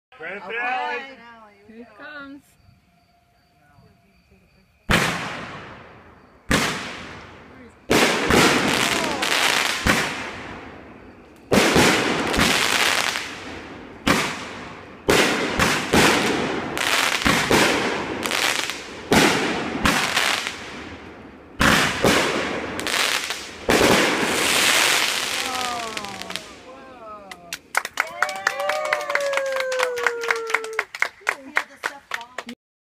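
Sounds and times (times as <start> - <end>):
fireworks bangs: 4.8 - 26.8
fireworks crackle: 4.9 - 32.6.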